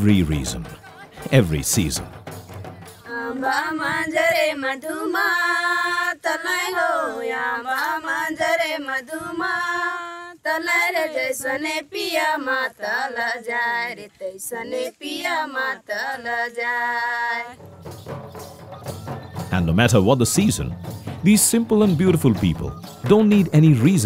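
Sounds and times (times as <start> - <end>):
woman singing unaccompanied: 2.6 - 17.8.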